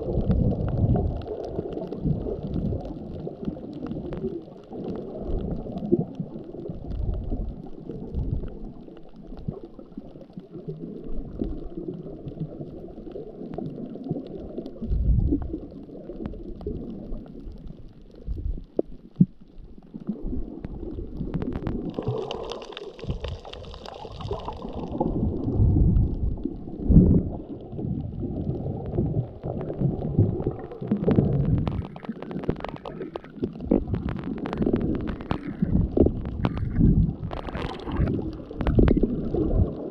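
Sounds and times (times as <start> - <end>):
faint underwater clicks: 0.0 - 39.9
underwater gurgling and sloshing: 0.0 - 39.9.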